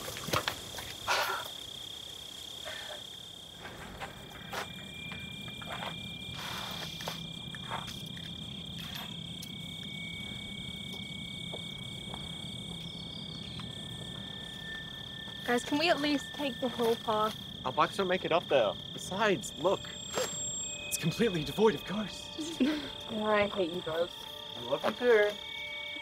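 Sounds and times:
insect chorus drone: 0.0 - 26.0
rustles and crunches: 3.5 - 9.5.

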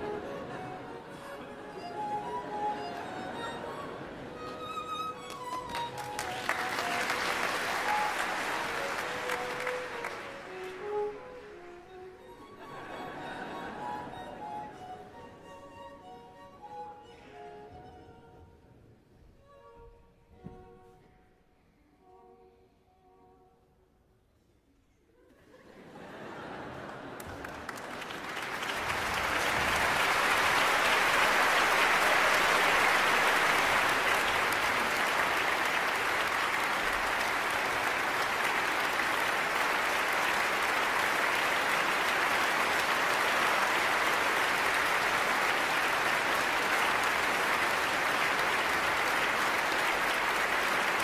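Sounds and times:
audience applauding: 1.8 - 11.9, 26.2 - 51.0.

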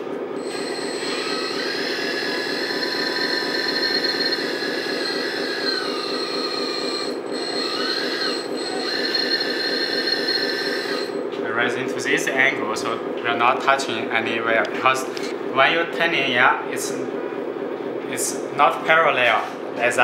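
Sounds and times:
electric hydraulic pump whine: 0.0 - 15.6.

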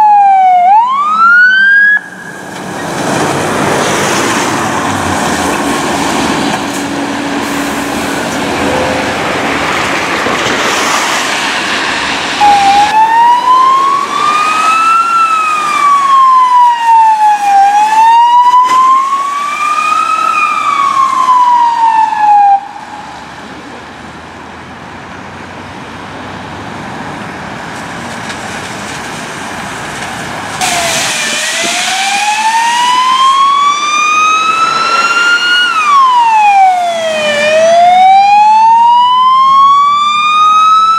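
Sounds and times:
electronic wail siren: 0.0 - 2.5, 12.4 - 23.3, 30.6 - 40.9
vehicle engine and tyre hiss: 2.1 - 9.7, 10.6 - 12.5, 24.6 - 32.8.

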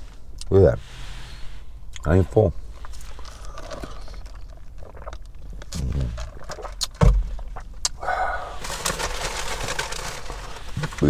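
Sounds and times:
low steady rumble: 0.0 - 11.0
dull thump: 7.0 - 7.4
rustling: 8.4 - 11.0.

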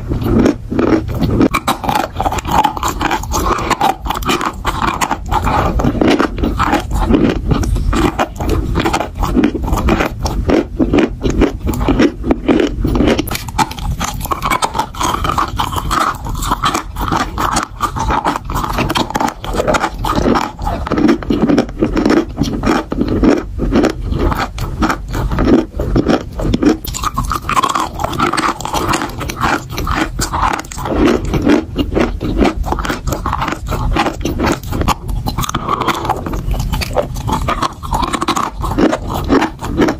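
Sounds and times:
chalk crunching while chewed: 0.0 - 39.9.

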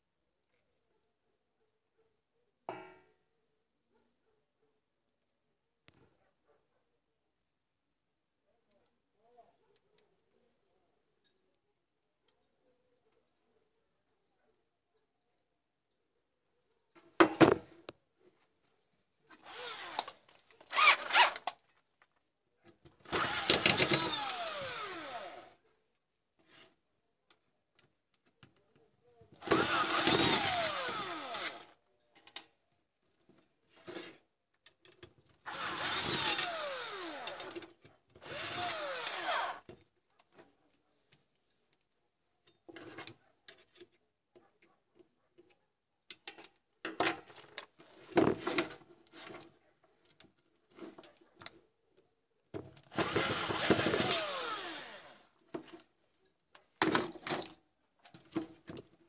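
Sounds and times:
cordless drill motor whine: 19.5 - 20.1, 23.1 - 25.6, 29.4 - 31.7, 35.5 - 37.6, 38.2 - 39.6, 53.0 - 55.2.

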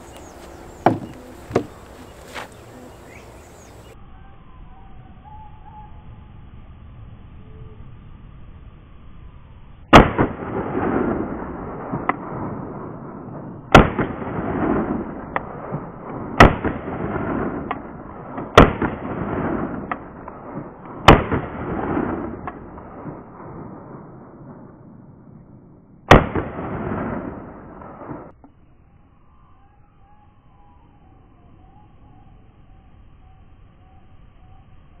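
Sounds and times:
pistol shots with echo: 13.7 - 23.5, 26.1 - 28.3.

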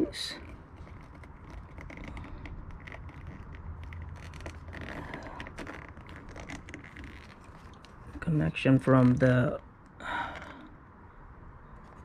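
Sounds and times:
clicks and scraping of wiring: 0.0 - 9.4
low steady hum: 0.0 - 12.0.

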